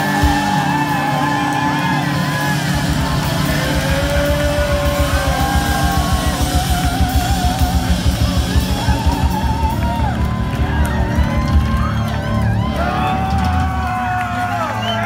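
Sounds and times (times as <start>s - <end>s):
electric guitar: 0.0s - 15.0s
fast driving drum beat: 0.0s - 15.0s.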